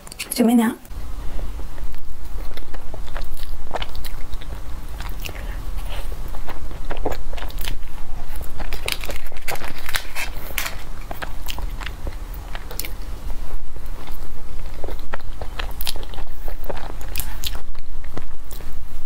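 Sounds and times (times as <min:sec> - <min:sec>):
person chewing cake: 0:01.5 - 0:19.0
paper liner crinkling: 0:08.6 - 0:10.9.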